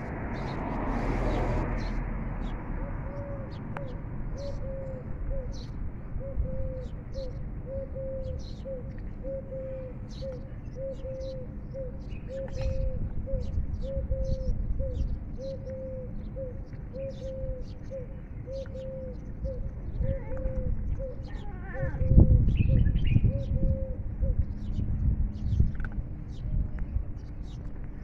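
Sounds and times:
dove cooing: 0:02.7 - 0:24.4
low background rumble: 0:19.0 - 0:28.0.

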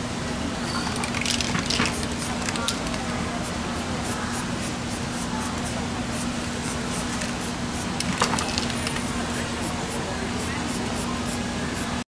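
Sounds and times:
street background hum: 0:00.0 - 0:12.0
stiff paper crackle: 0:00.9 - 0:03.1.

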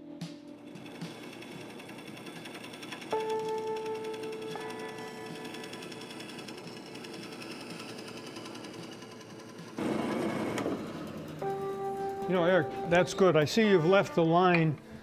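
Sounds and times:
bandsaw cutting wood: 0:00.6 - 0:12.4.

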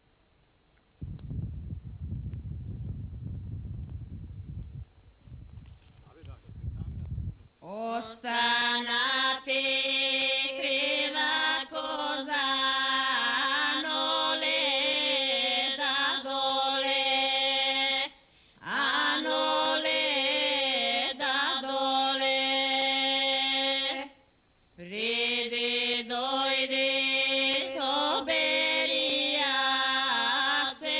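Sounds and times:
woman singing unaccompanied: 0:07.6 - 0:24.2, 0:24.8 - 0:30.9.

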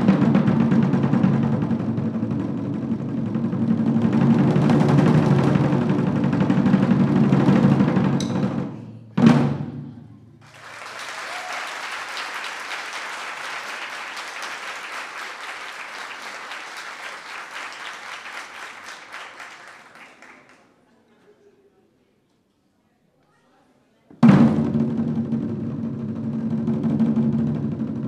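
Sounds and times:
barrel drums fast roll: 0:00.0 - 0:09.9, 0:24.2 - 0:28.0
loud drum stroke ringing: 0:00.0 - 0:10.1
audience applause: 0:10.4 - 0:20.8.

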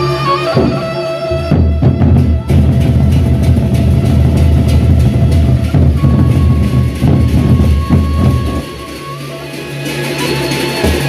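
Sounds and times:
barrel drums beaten: 0:00.4 - 0:09.2, 0:10.8 - 0:11.0
metallic cymbal strokes: 0:03.2 - 0:11.0.

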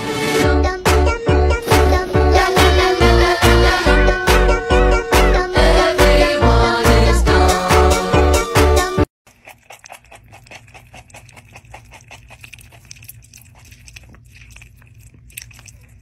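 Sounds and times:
loud pop music: 0:00.0 - 0:09.1
pet licking and nibbling: 0:09.3 - 0:16.0.

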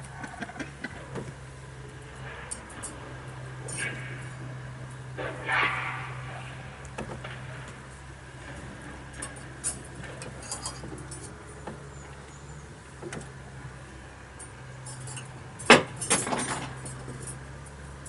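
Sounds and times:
steady low hum: 0:00.0 - 0:18.0
clinks and knocks: 0:08.4 - 0:12.4, 0:14.4 - 0:17.8.

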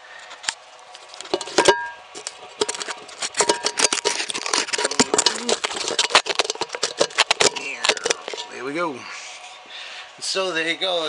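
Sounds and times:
hard objects clicking and clattering: 0:01.1 - 0:08.6.

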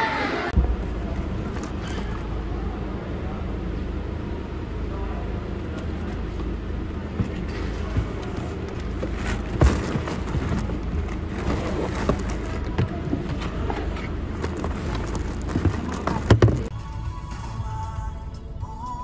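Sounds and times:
plastic bags rustling: 0:05.8 - 0:16.7
boxes knocking: 0:06.2 - 0:16.7.

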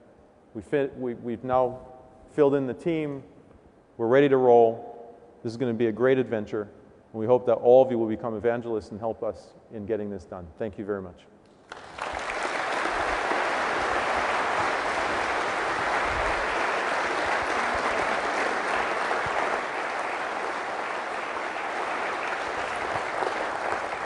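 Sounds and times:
audience applauding: 0:11.6 - 0:24.0.

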